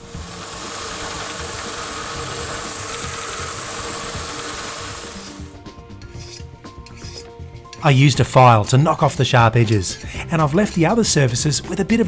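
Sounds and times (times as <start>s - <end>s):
belt sander grinding metal: 0.0s - 7.8s
hand file strokes on metal: 0.0s - 7.9s.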